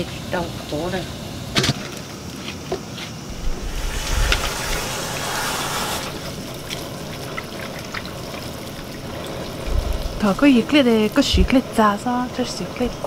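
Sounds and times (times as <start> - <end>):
water splashing and trickling: 3.3 - 13.0.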